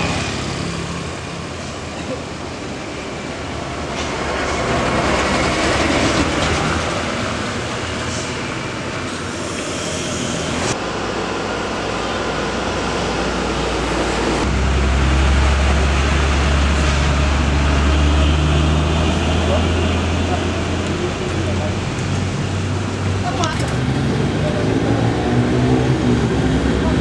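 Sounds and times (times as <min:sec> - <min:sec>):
road traffic: 0:00.0 - 0:27.0
low steady engine drone: 0:07.6 - 0:27.0.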